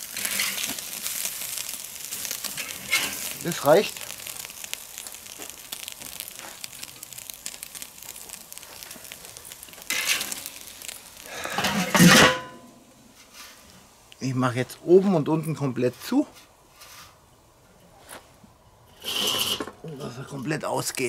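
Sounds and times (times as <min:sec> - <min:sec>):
meat sizzling on a grill: 0:00.0 - 0:17.5
metal lid clattering: 0:11.6 - 0:12.6.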